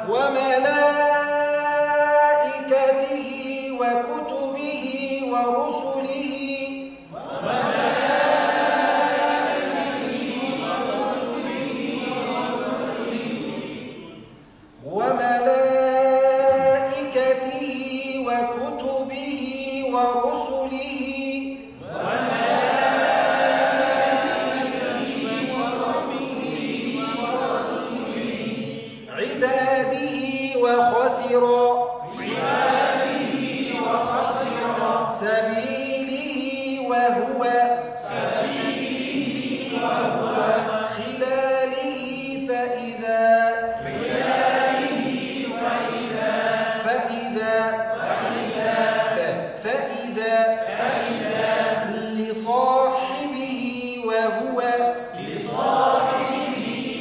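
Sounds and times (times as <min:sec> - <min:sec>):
man chanting: 0:00.0 - 0:07.3, 0:14.8 - 0:21.8, 0:28.8 - 0:32.1, 0:34.3 - 0:38.1, 0:40.8 - 0:44.0, 0:46.7 - 0:48.0, 0:49.0 - 0:50.7, 0:51.8 - 0:55.2
group chanting in unison: 0:07.0 - 0:15.0, 0:21.7 - 0:30.1, 0:30.7 - 0:35.8, 0:37.1 - 0:42.5, 0:43.5 - 0:53.3, 0:54.8 - 0:57.0.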